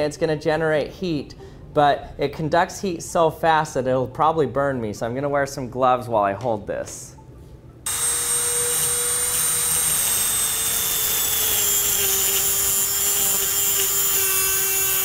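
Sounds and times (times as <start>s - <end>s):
rotary tool cutting metal pipe: 7.9s - 15.0s.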